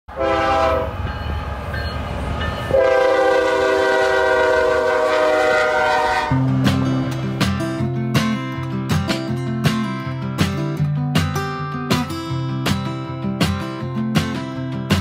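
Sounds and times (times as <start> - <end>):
locomotive air horn blasts: 0.1 - 1.1, 2.7 - 6.6
low rumble of passing train: 0.1 - 8.9
acoustic guitar music: 6.3 - 15.0.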